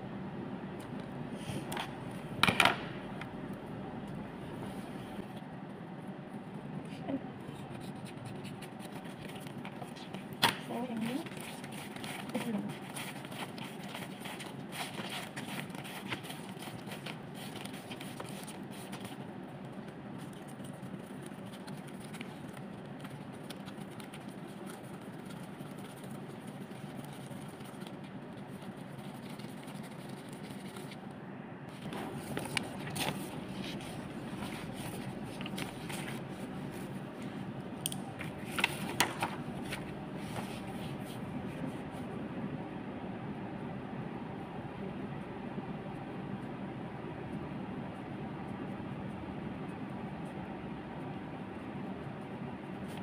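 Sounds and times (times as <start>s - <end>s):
steady background noise: 0.0s - 53.0s
paper rustling and scraping: 7.4s - 31.0s, 31.7s - 37.4s, 38.2s - 42.0s.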